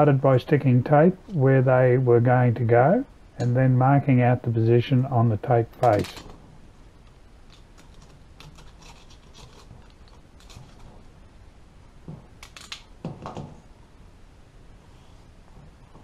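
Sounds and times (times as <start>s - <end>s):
masking tape rustling and scraping: 7.4s - 11.2s.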